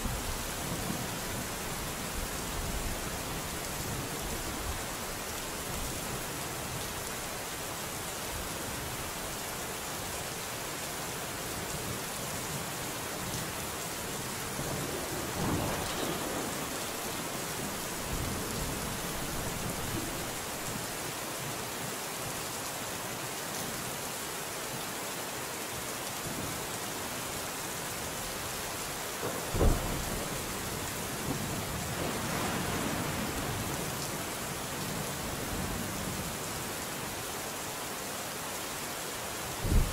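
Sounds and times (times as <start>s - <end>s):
steady rainfall: 0.0s - 39.9s
rolling thunder rumble: 14.6s - 20.7s, 29.4s - 33.9s, 39.6s - 39.9s
sharp loud thunderclap: 14.9s - 20.2s, 29.5s - 30.4s, 39.6s - 39.9s.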